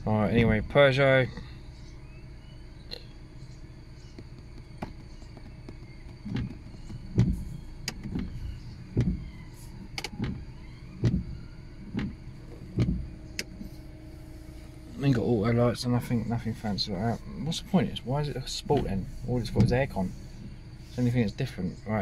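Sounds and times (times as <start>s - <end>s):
car engine idling: 0.0s - 22.0s
low thumps: 4.1s - 20.8s.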